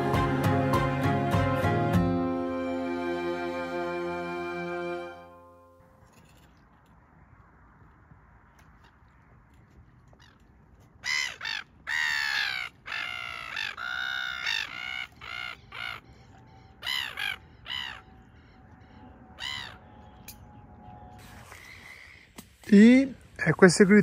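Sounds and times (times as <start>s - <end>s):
gulls screaming: 11.0s - 22.4s.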